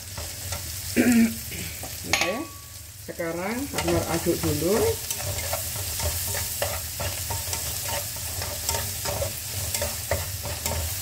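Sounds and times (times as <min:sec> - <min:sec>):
spatula scraping a frying pan: 0:00.0 - 0:01.0, 0:03.6 - 0:11.0
sizzling in oil: 0:00.0 - 0:11.0.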